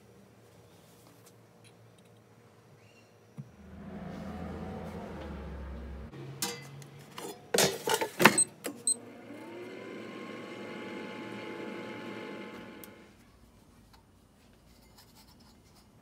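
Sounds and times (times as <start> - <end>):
fan motor whine: 3.4 - 6.5, 8.9 - 13.2
low hum: 3.4 - 6.8.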